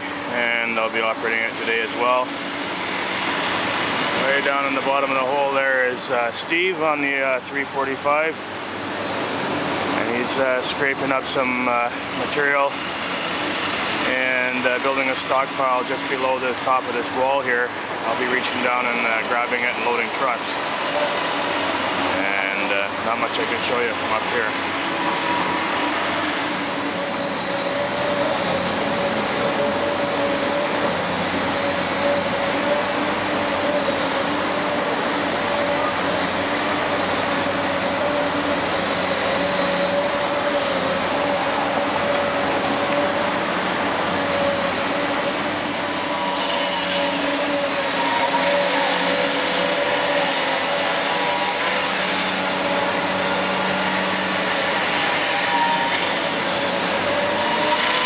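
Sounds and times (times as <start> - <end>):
diesel engines droning: 0.0 - 58.0
machine whine: 8.5 - 58.0.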